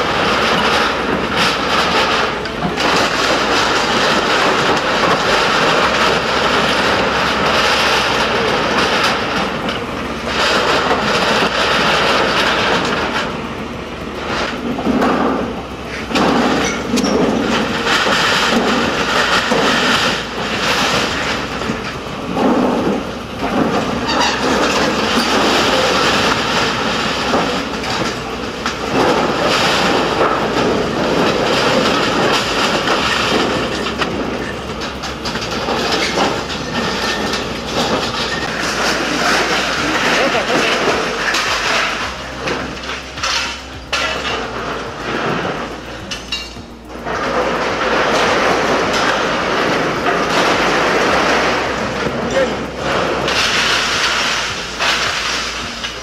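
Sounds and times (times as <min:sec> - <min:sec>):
corrugated metal crumpling and crashing: 0:00.0 - 0:56.0
excavator engine running: 0:00.0 - 0:56.0
timber breaking: 0:16.1 - 0:56.0.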